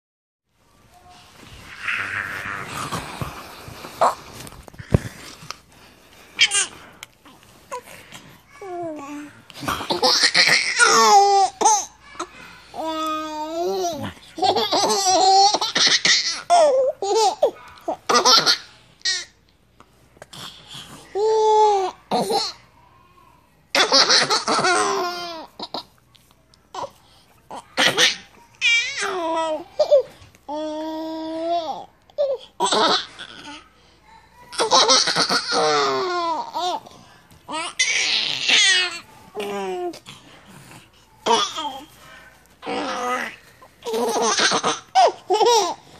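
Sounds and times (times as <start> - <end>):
toddler babbling: 8.5 - 9.4, 41.2 - 42.0
toddler laughing: 9.8 - 12.4, 34.5 - 36.8, 42.6 - 45.8.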